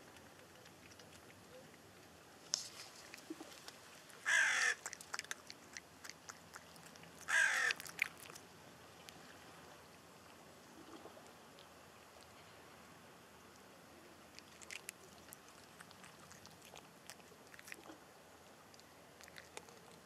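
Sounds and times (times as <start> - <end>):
crow cawing: 4.2 - 4.8, 7.3 - 7.8.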